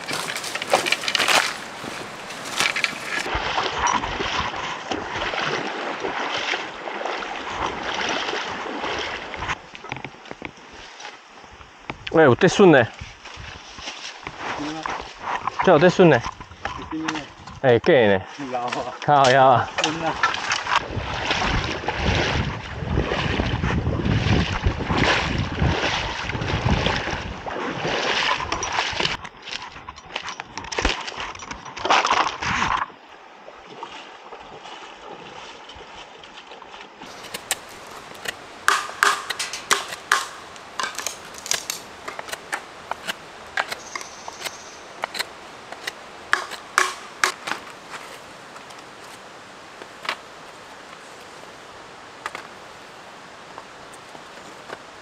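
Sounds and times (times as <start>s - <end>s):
sticks and pebbles clicking: 0.0s - 3.3s, 37.1s - 49.2s
bamboo poles rustling and knocking: 0.0s - 5.0s, 13.0s - 17.6s, 37.0s - 51.5s, 52.1s - 55.0s
creek hiss: 0.0s - 16.1s, 37.0s - 55.0s.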